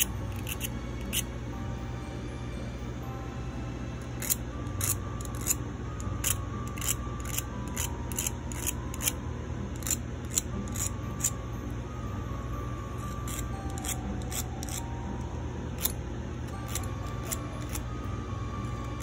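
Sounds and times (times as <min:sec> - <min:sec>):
hand file scraping: 0:00.0 - 0:01.3.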